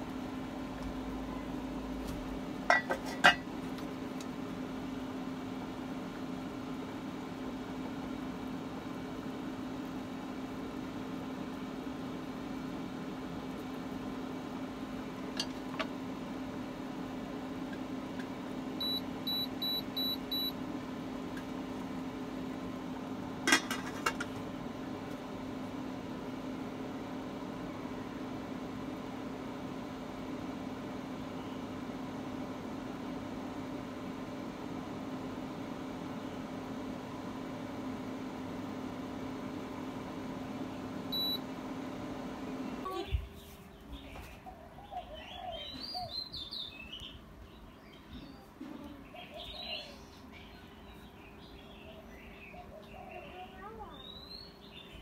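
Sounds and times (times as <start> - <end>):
induction cooktop humming: 0.0 - 55.0
metal lid clattering on pot: 2.7 - 3.5.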